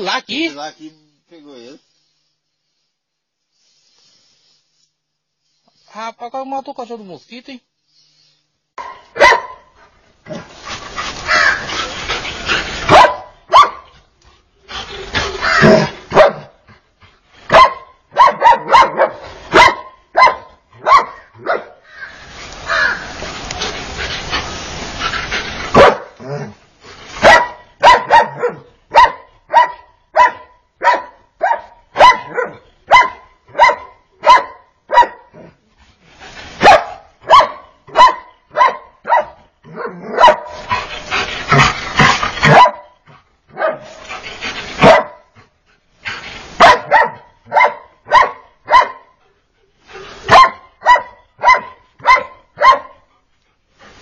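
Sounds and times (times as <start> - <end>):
dog barking rapidly: 8.8 - 9.7, 11.1 - 11.8, 12.8 - 13.9, 15.4 - 16.6, 17.5 - 21.8, 25.7 - 26.2, 27.2 - 35.3, 36.6 - 40.8, 41.5 - 43.9, 44.8 - 45.3, 46.6 - 49.1, 50.3 - 53.0.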